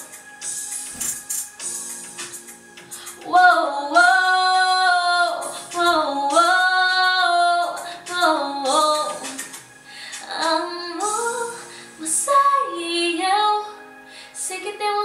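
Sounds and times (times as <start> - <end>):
woman singing wordless vocals: 3.1 - 9.4, 10.2 - 13.8, 14.4 - 15.0.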